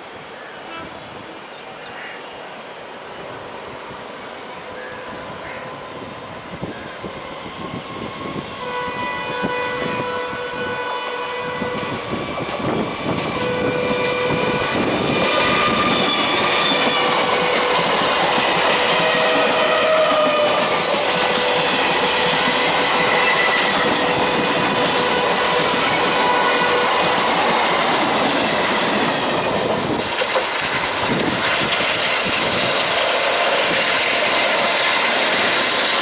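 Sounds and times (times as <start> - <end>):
train horn: 0.6 - 1.4, 8.6 - 12.0, 13.2 - 17.8, 18.7 - 27.3
train wheels clacking on rails: 11.1 - 36.0.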